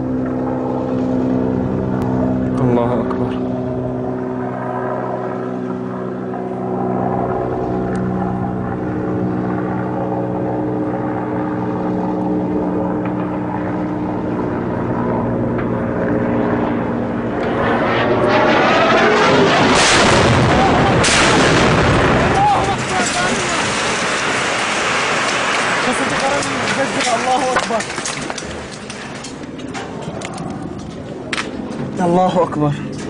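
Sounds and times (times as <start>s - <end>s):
helicopter engines and rotor droning: 0.0s - 33.0s
bomb blast rush: 16.9s - 27.2s
sharp cracks: 18.4s - 31.8s.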